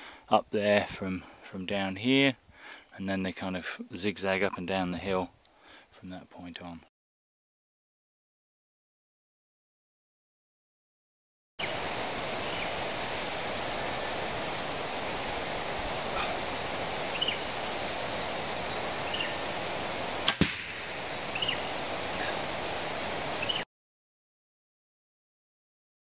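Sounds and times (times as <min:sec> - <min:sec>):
steady hiss: 0:11.6 - 0:23.6
faint bird chirps: 0:17.1 - 0:17.8, 0:18.7 - 0:19.4, 0:21.2 - 0:22.4, 0:23.4 - 0:23.6
bow string release cracks: 0:20.2 - 0:20.8
arrow striking target: 0:20.2 - 0:20.9.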